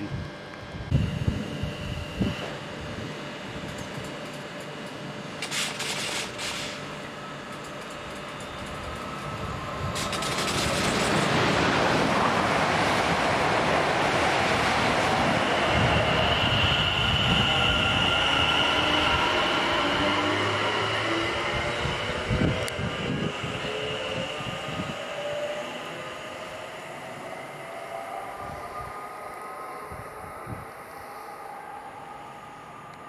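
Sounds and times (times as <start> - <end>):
train wheels and air rushing: 7.9 - 33.0
high-pitched squeal: 15.0 - 33.0.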